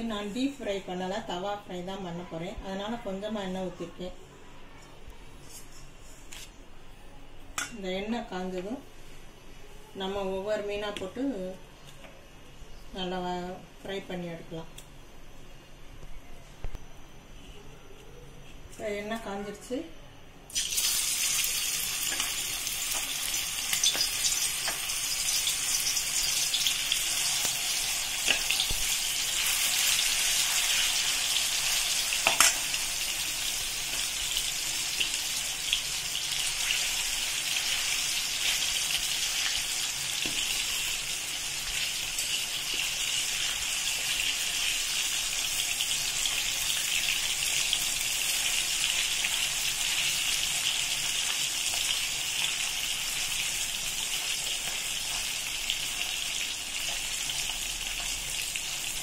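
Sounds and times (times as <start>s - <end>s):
fish sizzling in hot oil: 20.5s - 59.0s.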